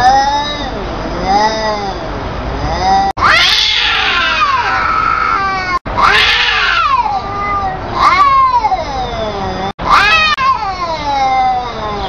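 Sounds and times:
cats yowling: 2.7 - 12.0.

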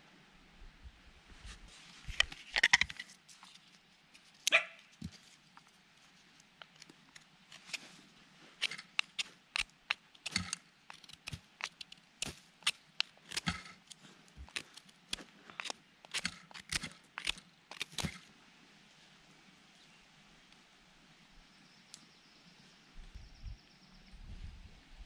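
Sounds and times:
knife shaving wooden stick: 2.1 - 18.3
knife scraping out of sheath: 8.6 - 18.2.

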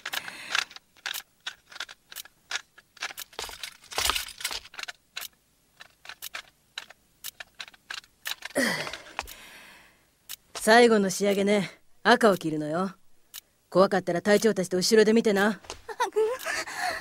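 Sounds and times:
metal clatter: 0.0 - 5.0
small metal tools clicking: 0.0 - 9.4.

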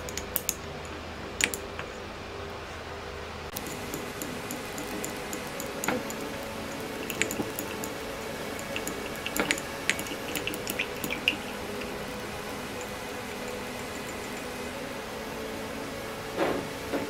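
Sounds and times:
small parts clicking: 0.0 - 0.6
steady low hum: 0.0 - 17.0.

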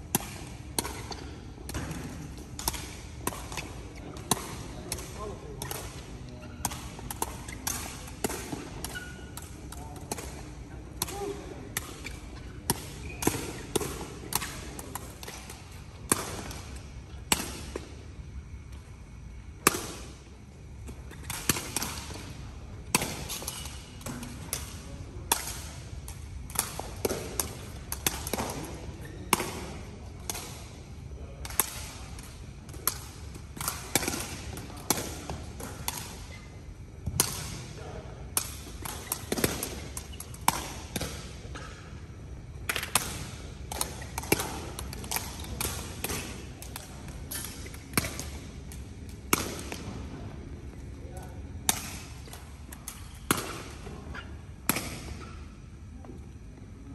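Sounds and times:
balls being kicked and bouncing: 37.0 - 37.4.

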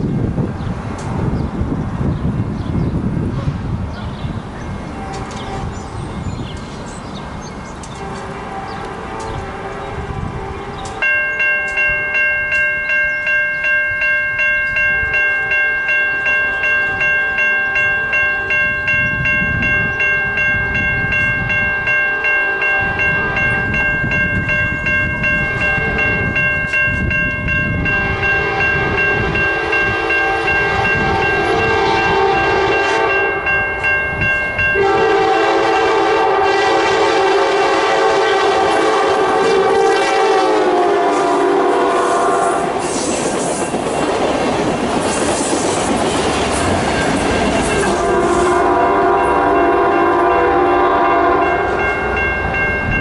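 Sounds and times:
train running: 0.0 - 53.0
railroad crossing bell ringing: 4.6 - 53.0
train horn: 4.9 - 6.0, 7.9 - 11.1, 22.0 - 23.9, 25.4 - 26.5, 27.8 - 33.7, 34.7 - 43.0, 47.6 - 52.2.

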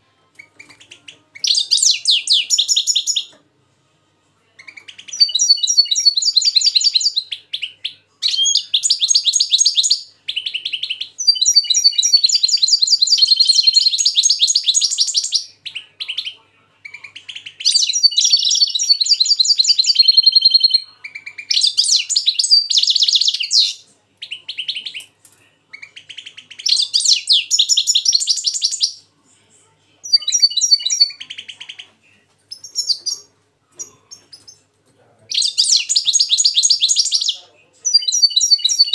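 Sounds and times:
finches twittering song: 0.4 - 3.4, 4.6 - 25.1, 25.7 - 29.0, 30.0 - 31.8, 32.5 - 33.3, 35.3 - 38.9.

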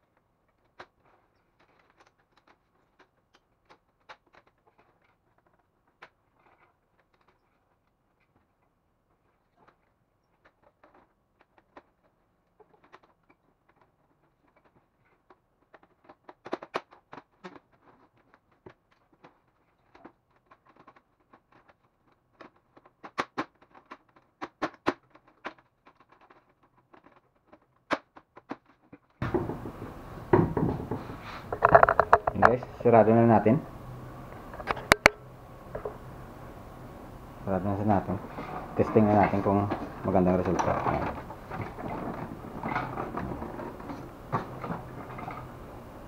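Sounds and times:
plastic clicks and knocks: 9.6 - 46.0
handling noise: 28.4 - 46.0.

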